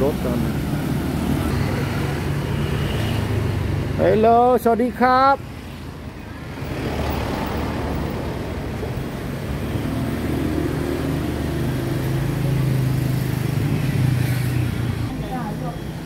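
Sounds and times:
road noise: 0:00.0 - 0:16.0.

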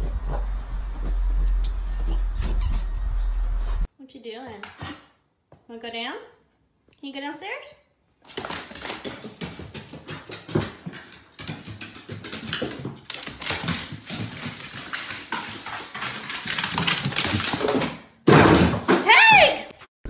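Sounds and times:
dog claws clicking on wooden stairs: 0:08.3 - 0:19.0.

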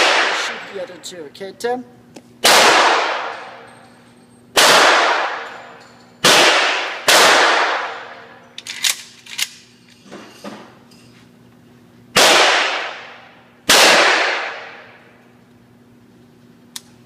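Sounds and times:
gunshots echoing indoors: 0:00.0 - 0:00.7, 0:02.4 - 0:03.7, 0:04.5 - 0:08.4, 0:12.1 - 0:15.1
gun handling clicks: 0:08.6 - 0:09.6.

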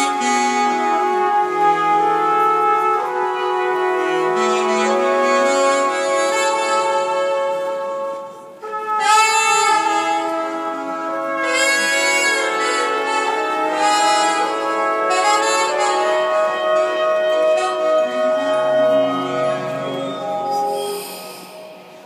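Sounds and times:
brass instrumental music: 0:00.0 - 0:22.0.

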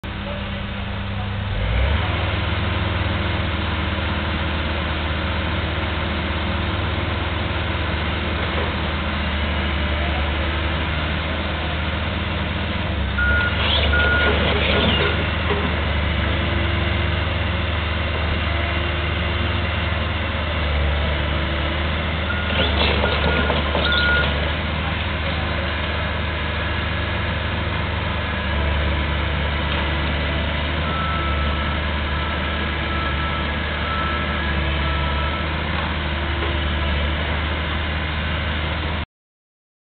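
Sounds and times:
diesel machinery running: 0:00.0 - 0:39.0
backup alarm beeping: 0:13.2 - 0:14.3.

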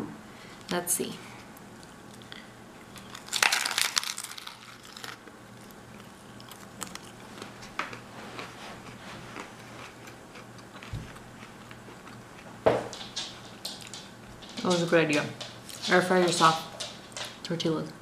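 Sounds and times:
chewing crunches: 0:01.8 - 0:12.6
crunchy bite into taco: 0:02.9 - 0:12.4.

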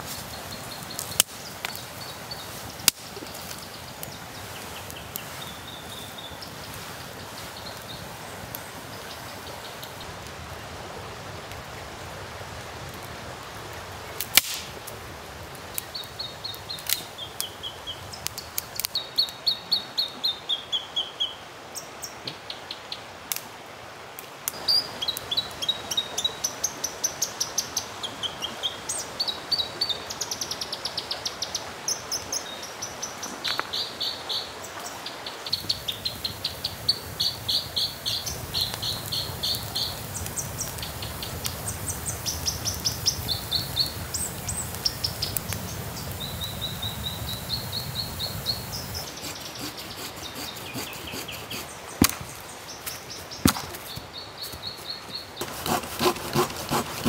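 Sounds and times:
campfire burning: 0:00.0 - 0:19.4, 0:35.5 - 0:57.0
small birds chirping: 0:00.2 - 0:10.1, 0:24.6 - 0:57.0
sharp crack: 0:02.8 - 0:03.2, 0:14.2 - 0:14.8, 0:52.0 - 0:52.4.

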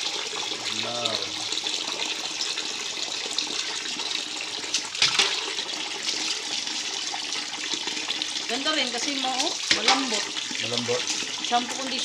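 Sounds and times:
water splashing on dog's coat: 0:03.4 - 0:12.0.

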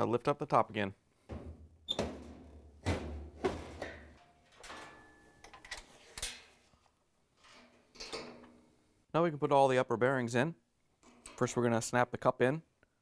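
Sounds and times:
washer lid clunking and rattling: 0:01.3 - 0:05.1.

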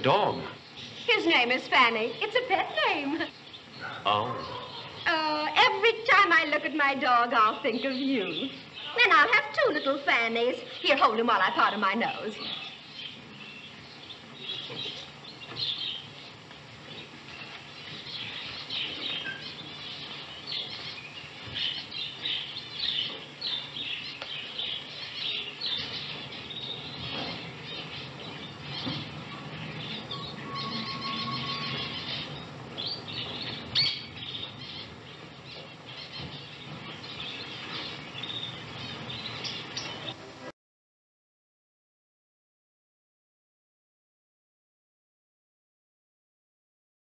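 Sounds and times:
cage birds chirping and twittering: 0:00.0 - 0:40.5.

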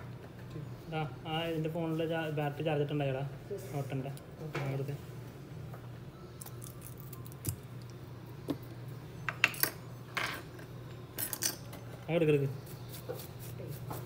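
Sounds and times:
steady low hum: 0:00.0 - 0:14.0
metal tools clinking on workbench: 0:11.2 - 0:11.8.

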